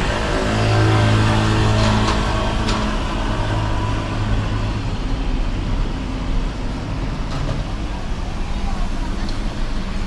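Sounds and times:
car engine and tyres: 0.0 - 10.0
urban background noise: 0.0 - 10.0.

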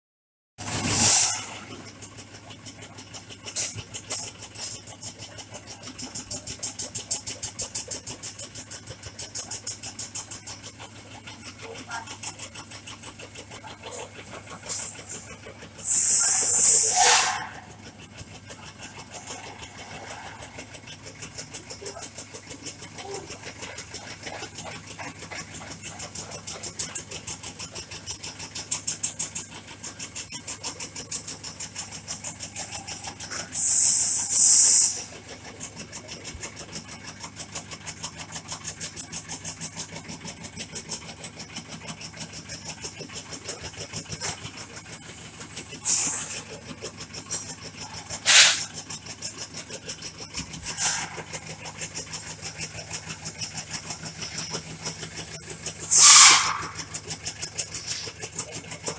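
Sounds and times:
hissing rush: 0.6 - 1.7, 15.8 - 17.6, 55.9 - 56.7
tobacco shredding machine chopping: 0.6 - 37.0, 38.9 - 58.9.

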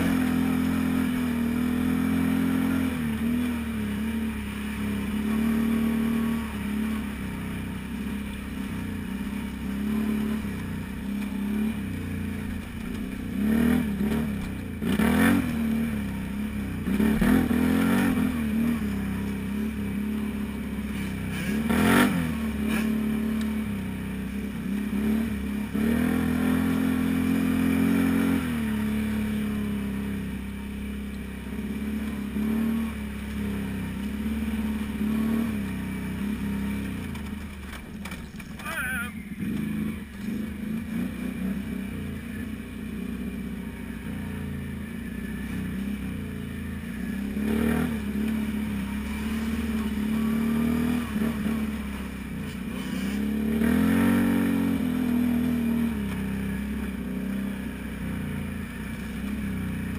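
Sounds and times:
atv engine revving: 0.0 - 59.9
clattering knocks over bumps: 37.0 - 38.6.

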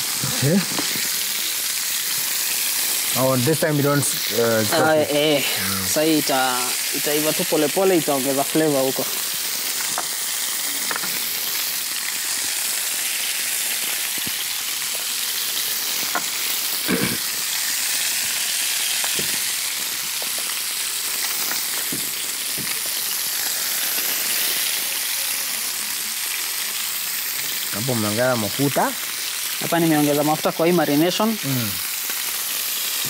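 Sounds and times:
chicken sizzling in oil: 0.0 - 33.0.

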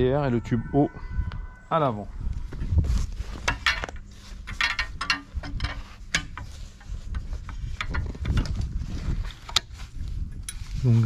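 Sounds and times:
metal frame clicks and knocks: 3.4 - 6.5.

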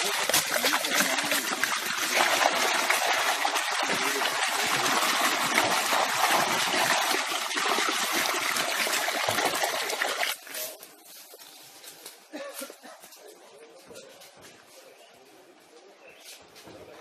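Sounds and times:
water splashing into pool: 0.0 - 10.8.

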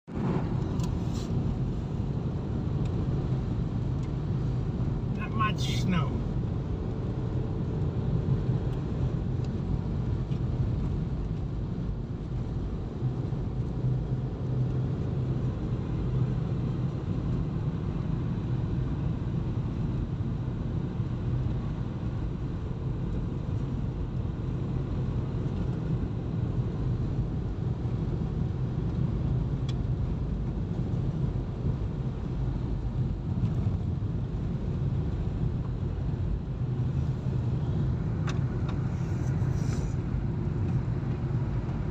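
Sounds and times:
car engine and tyres on snow: 0.1 - 41.9.

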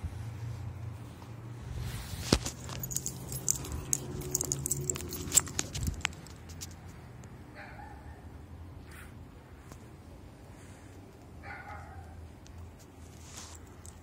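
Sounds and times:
phone handling clicks and rattles: 2.3 - 6.8.

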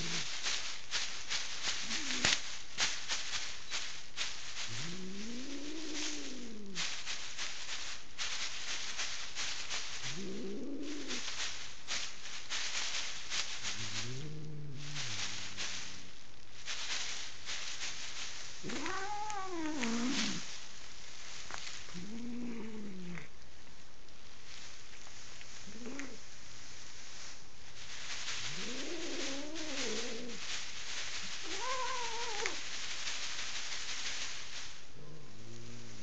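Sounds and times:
plastic sheeting crinkling: 0.0 - 36.0
cat yowling: 18.7 - 20.4, 31.4 - 32.6.

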